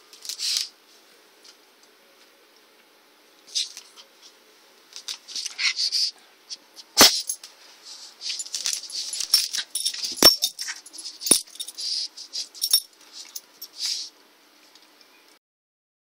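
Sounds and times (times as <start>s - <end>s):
dogs scuffling: 7.8s - 14.1s.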